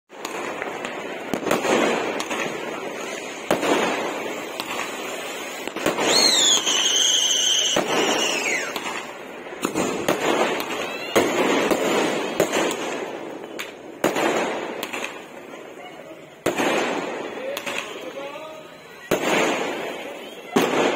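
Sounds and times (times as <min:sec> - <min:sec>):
sharp firework bangs: 0:00.1 - 0:15.5, 0:16.4 - 0:18.2, 0:19.0 - 0:20.9
fireworks bursting and crackling: 0:00.1 - 0:20.9
shrill firework whistle: 0:05.9 - 0:09.0, 0:10.5 - 0:11.8, 0:18.6 - 0:20.9.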